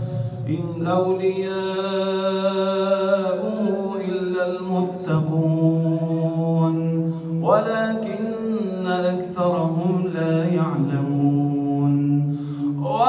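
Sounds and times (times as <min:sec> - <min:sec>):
man reciting melodically into microphone: 0:00.0 - 0:13.0.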